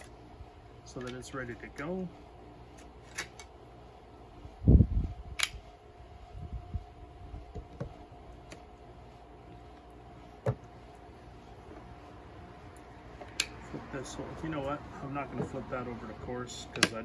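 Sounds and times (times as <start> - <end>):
sharp click: 5.4 - 5.6.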